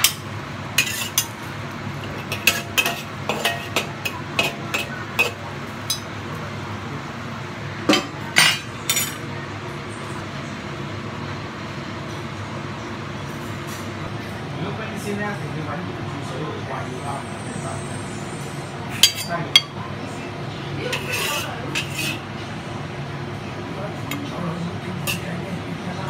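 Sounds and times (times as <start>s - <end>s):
metal spatula scraping wok: 0.8s - 1.4s, 2.0s - 5.4s, 20.9s - 22.3s.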